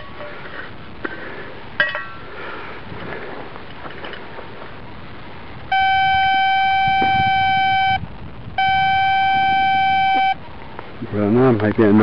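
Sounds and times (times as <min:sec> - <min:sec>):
metal detector beeping: 0:05.7 - 0:08.0, 0:08.6 - 0:10.4.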